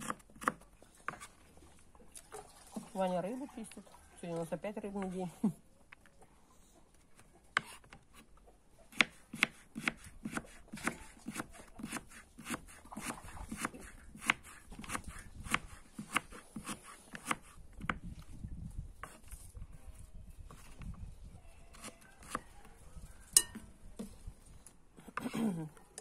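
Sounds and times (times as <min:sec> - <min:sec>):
knife chopping on wooden board: 0:00.0 - 0:01.3, 0:08.9 - 0:18.0.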